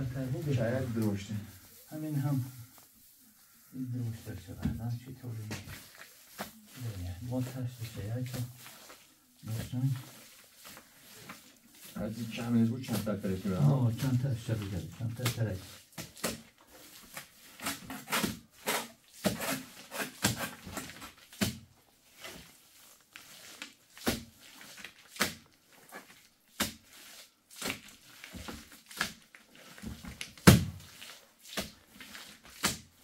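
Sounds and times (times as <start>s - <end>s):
straw rustling: 0.0s - 20.1s
hands squelching wet plaster: 0.0s - 33.0s.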